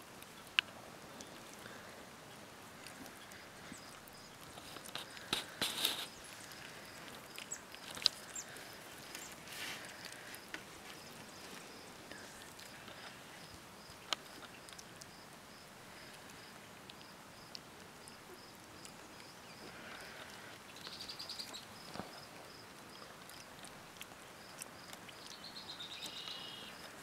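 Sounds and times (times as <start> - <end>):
puppies rustling in straw: 4.5 - 6.9, 8.5 - 13.3.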